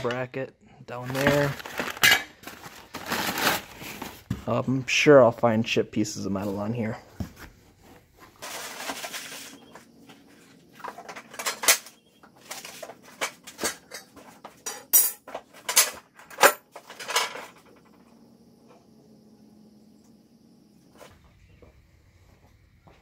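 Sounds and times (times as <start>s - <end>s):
cardboard rustling: 1.0s - 4.6s, 6.5s - 9.8s
metal parts clanking on concrete: 1.1s - 2.8s, 10.8s - 18.0s.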